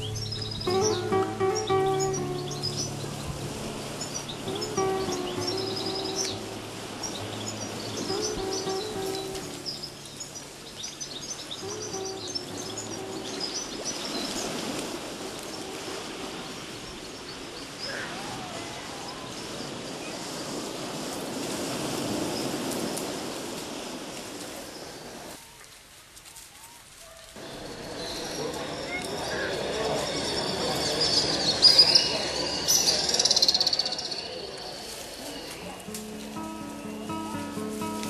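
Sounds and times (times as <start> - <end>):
bird chirps: 0.0 - 14.8, 27.4 - 36.8
soft music with held notes: 0.0 - 16.9, 35.5 - 38.0
outdoor hiss: 0.0 - 19.6, 21.4 - 38.0
short gliding bird calls: 26.6 - 35.7.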